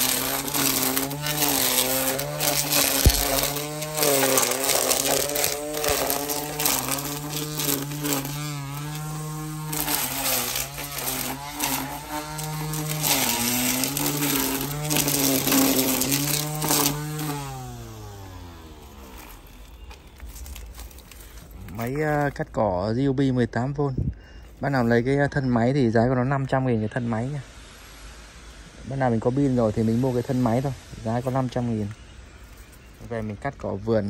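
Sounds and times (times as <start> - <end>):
crackling vegetation strikes: 0.0 - 17.4, 19.0 - 22.4
string trimmer motor whine: 0.0 - 22.4.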